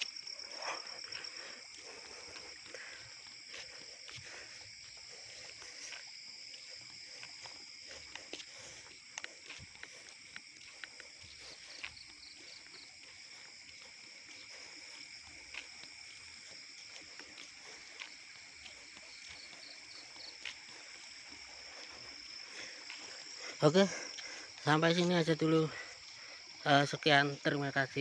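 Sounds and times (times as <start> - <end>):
insects trilling: 0.0 - 28.0
rapid insect chirps: 0.0 - 28.0.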